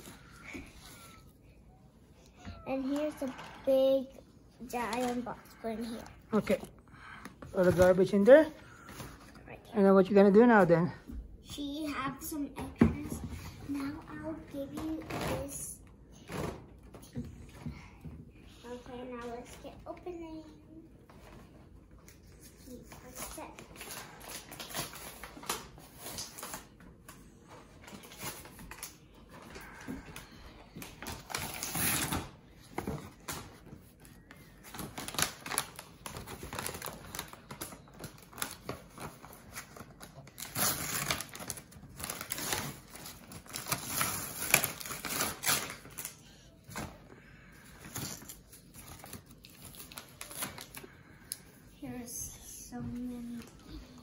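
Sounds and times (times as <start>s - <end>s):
plastic packaging clicks and crackles: 4.7s - 5.4s, 34.6s - 47.0s, 47.8s - 51.4s.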